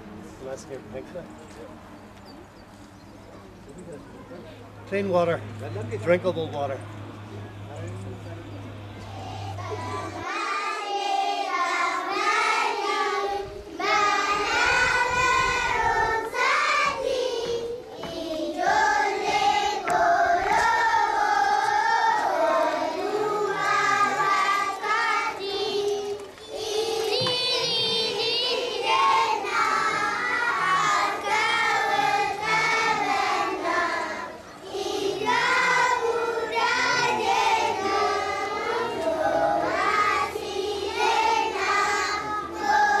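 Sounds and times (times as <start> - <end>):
group singing with children: 8.7 - 43.0.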